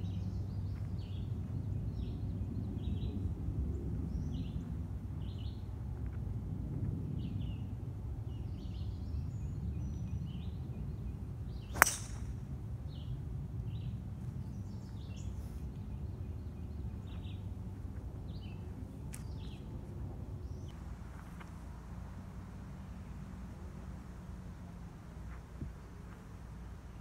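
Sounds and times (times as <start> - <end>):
birds chirping: 0.0 - 5.7, 8.3 - 23.7
low outdoor rumble: 0.0 - 27.0
golf club striking ball: 11.7 - 12.5.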